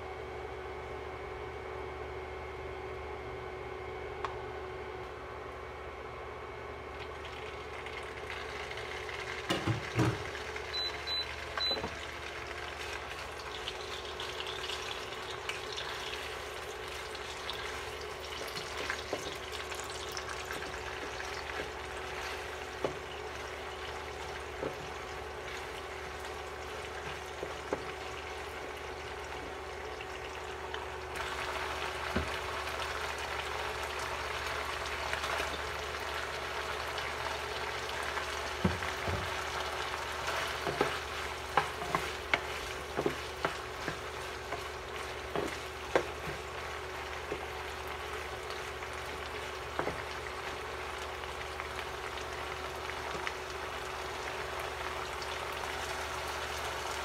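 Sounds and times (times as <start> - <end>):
meat sizzling in oil: 7.1 - 57.0
knocks in frying pan: 9.4 - 10.3.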